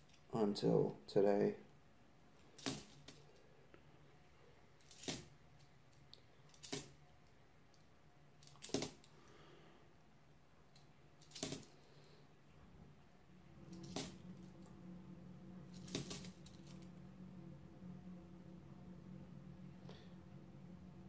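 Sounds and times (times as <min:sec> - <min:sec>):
coins clinking: 0:02.6 - 0:03.3, 0:04.8 - 0:05.3, 0:06.5 - 0:07.0, 0:08.4 - 0:09.1, 0:11.2 - 0:11.7, 0:13.7 - 0:14.2, 0:15.7 - 0:16.8.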